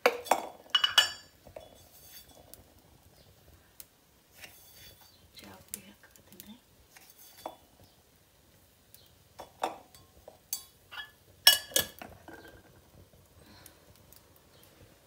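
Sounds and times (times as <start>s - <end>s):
metal utensils clinking: 0.0s - 2.5s, 7.0s - 7.6s, 9.4s - 12.6s.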